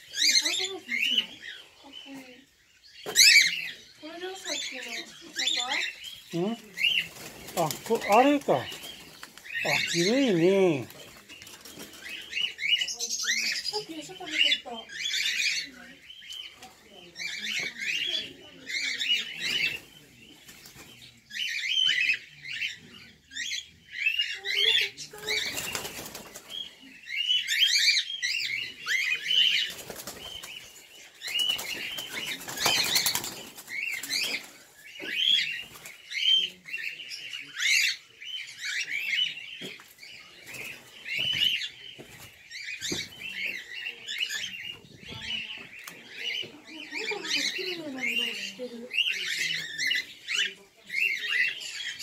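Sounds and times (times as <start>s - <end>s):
birds chirping: 0.0s - 52.0s
wing flapping: 6.8s - 9.4s, 25.2s - 26.5s, 29.6s - 30.7s, 31.3s - 34.6s.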